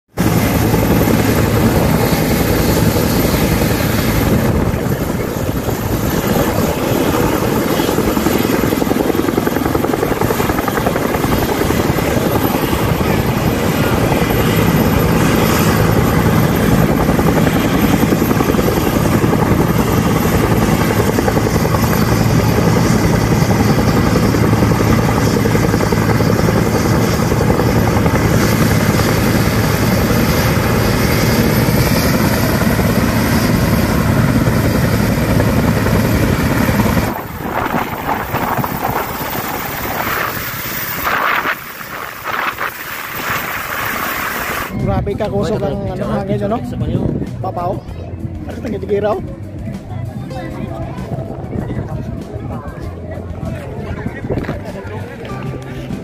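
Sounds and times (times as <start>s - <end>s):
helicopter turbine and rotor noise: 0.1s - 56.0s.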